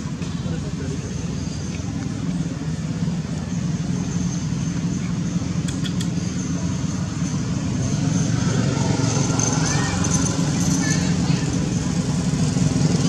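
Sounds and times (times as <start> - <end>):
low outdoor rumble: 0.0 - 13.0
brief clicks: 5.6 - 6.1.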